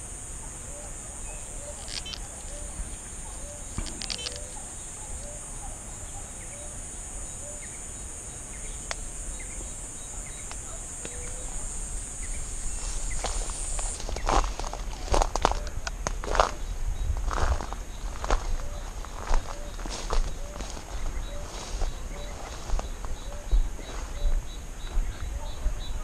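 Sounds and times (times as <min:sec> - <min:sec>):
high-pitched insect buzz: 0:00.0 - 0:14.7
faint repeated animal call: 0:00.5 - 0:07.8
footsteps in tall grass: 0:12.2 - 0:16.6, 0:17.2 - 0:25.4.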